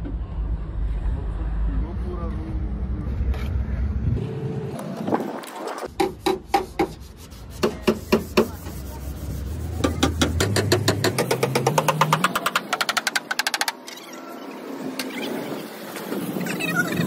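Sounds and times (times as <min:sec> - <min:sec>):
steady low hum: 0:00.0 - 0:05.1
sanding on steel panel: 0:05.9 - 0:10.7
sharp knocks: 0:09.8 - 0:13.8.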